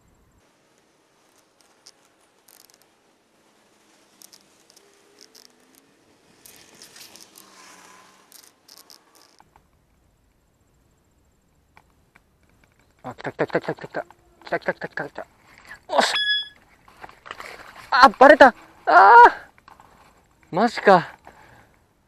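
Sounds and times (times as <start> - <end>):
fishing reel clicks and ticks: 6.4 - 9.4
short gliding tones: 15.8 - 16.6.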